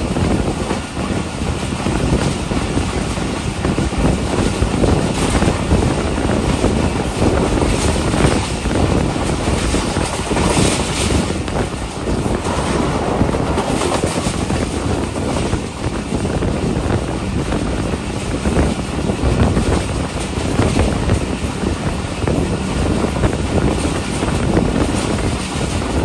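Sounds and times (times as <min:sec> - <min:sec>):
train wheels rumbling on rails: 0:00.0 - 0:26.0
wind buffeting microphone: 0:00.0 - 0:26.0.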